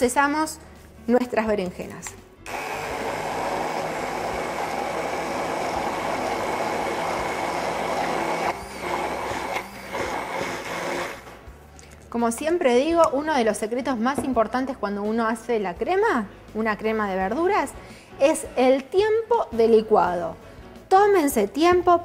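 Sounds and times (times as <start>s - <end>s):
immersion blender motor running: 2.5s - 11.2s.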